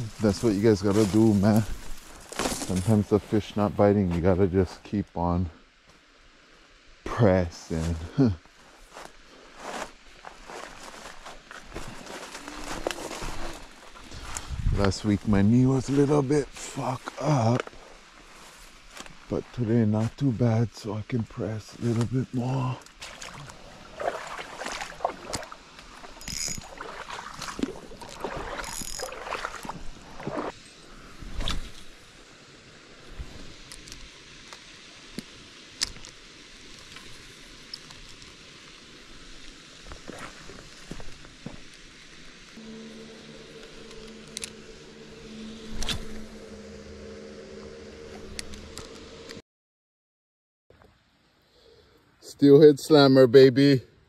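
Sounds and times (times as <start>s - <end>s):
footsteps through dry grass: 0.0s - 3.4s, 7.8s - 20.1s, 39.2s - 42.3s
fishing reel whirring: 26.2s - 26.9s, 28.1s - 29.7s
short high-pitched sounds: 42.6s - 49.4s.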